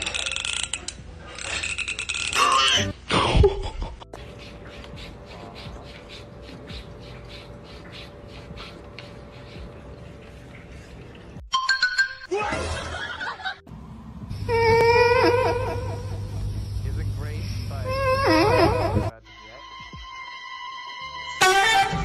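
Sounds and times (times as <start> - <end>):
cat lapping water: 4.2 - 11.4.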